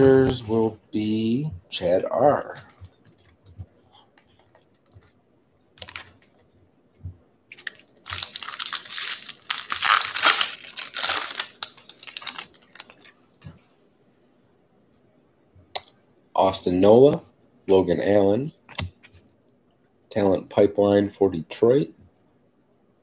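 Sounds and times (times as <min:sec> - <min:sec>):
wrapper crinkling and tearing: 0:07.5 - 0:13.2.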